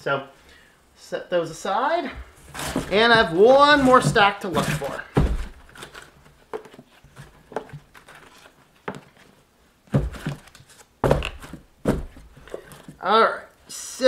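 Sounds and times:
books knocking in cardboard box: 2.4 - 8.0, 9.9 - 13.0
loud book thumps: 2.5 - 5.9, 9.9 - 13.0.

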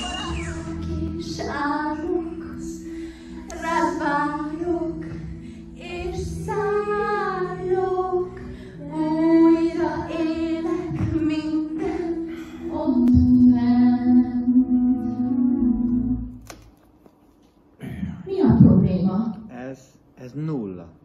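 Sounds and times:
woman singing into microphone: 0.0 - 16.3.

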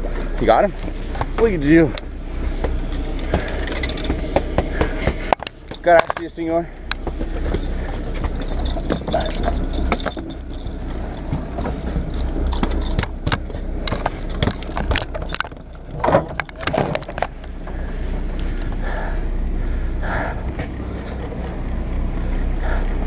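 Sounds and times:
boat engine droning: 0.0 - 23.0
clicks and metallic clinks: 5.3 - 17.5.

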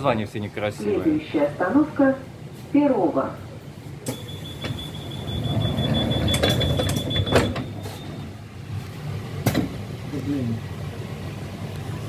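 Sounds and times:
train rumble: 0.0 - 12.0
sliding doors clunking: 4.0 - 8.5
high warning tone: 4.1 - 8.4.

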